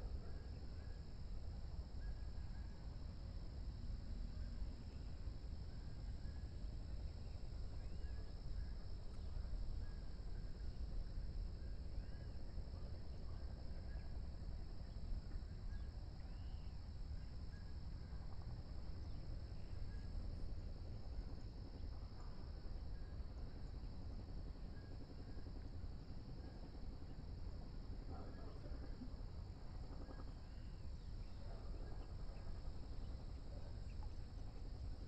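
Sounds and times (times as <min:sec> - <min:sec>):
insects chirring: 0:00.0 - 0:35.0
low continuous rumble: 0:00.0 - 0:35.0
faint chirps: 0:06.2 - 0:20.6, 0:28.0 - 0:35.0.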